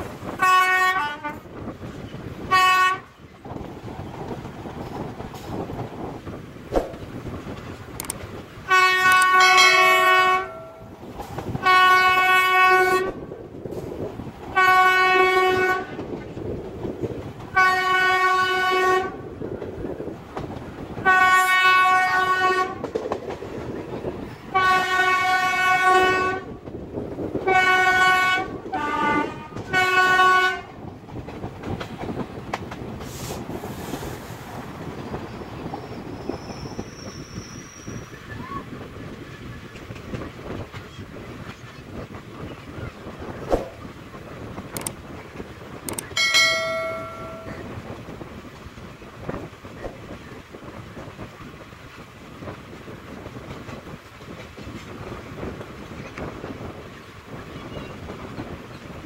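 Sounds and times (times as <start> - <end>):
train wheels rumbling on rails: 0.0 - 59.0
train horn blasts: 0.3 - 1.4, 2.5 - 3.1, 8.7 - 11.0, 11.6 - 13.2, 14.6 - 16.0, 17.5 - 19.2, 21.0 - 22.9, 24.5 - 26.6, 27.5 - 30.8, 46.2 - 47.8.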